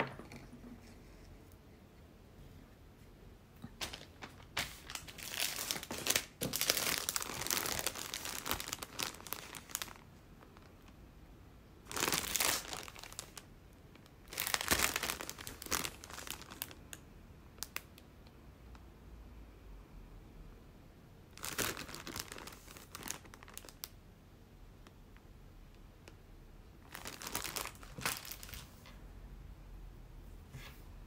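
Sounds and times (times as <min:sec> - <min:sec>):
plastic packaging crinkling: 0:03.6 - 0:11.0, 0:11.8 - 0:17.0, 0:21.3 - 0:24.0, 0:26.8 - 0:28.9.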